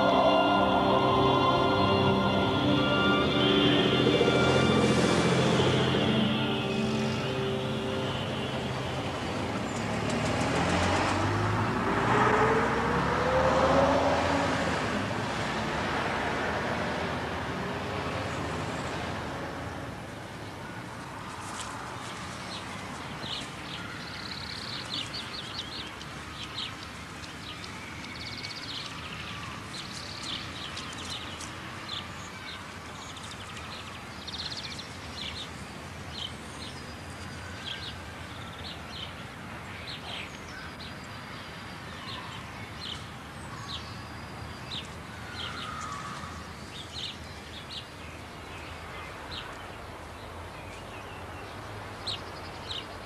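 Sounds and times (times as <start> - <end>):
low background noise: 0.0 - 53.0
small birds chirping: 21.5 - 49.8.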